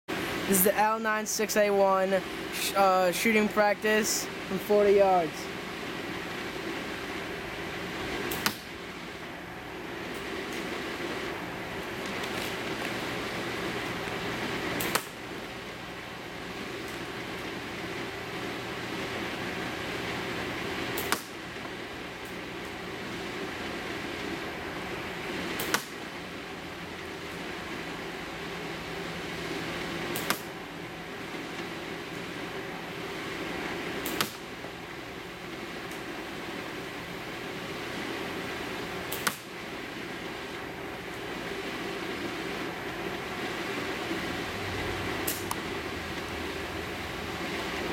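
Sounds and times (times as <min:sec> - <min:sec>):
steady background hiss: 0:00.1 - 0:47.9
airsoft rifle shot: 0:08.3 - 0:08.7, 0:25.6 - 0:26.0, 0:34.0 - 0:34.5
airsoft rifle shot snap: 0:08.3 - 0:08.7, 0:14.8 - 0:15.2, 0:21.0 - 0:21.4, 0:25.6 - 0:26.0, 0:30.1 - 0:30.5, 0:34.0 - 0:34.5, 0:39.1 - 0:39.5, 0:45.2 - 0:45.6.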